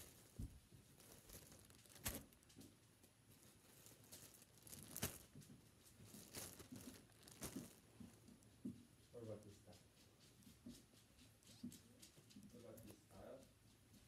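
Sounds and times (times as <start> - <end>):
sharp packaging crackles: 0.0 - 2.6, 3.4 - 8.1
food packaging rustling: 0.0 - 8.3.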